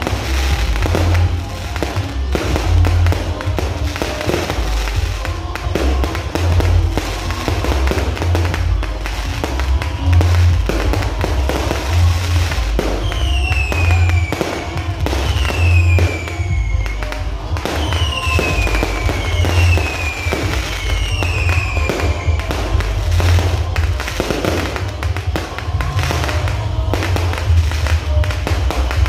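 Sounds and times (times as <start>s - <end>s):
fireworks bangs and crackles: 0.0s - 29.0s
music with heavy bass beat: 0.0s - 29.0s
falling firework whistles: 11.6s - 24.9s.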